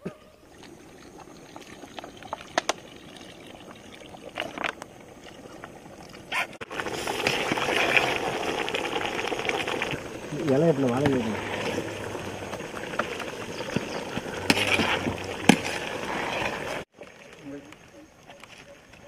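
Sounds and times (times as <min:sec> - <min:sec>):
ladle stirring rice in pot: 0:06.8 - 0:16.8.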